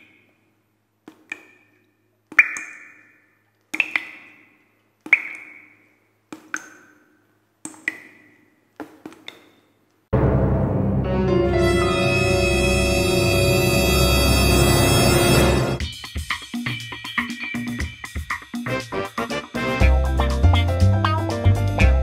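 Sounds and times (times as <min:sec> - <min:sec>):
sharp ringing strikes: 0:10.2 - 0:15.8.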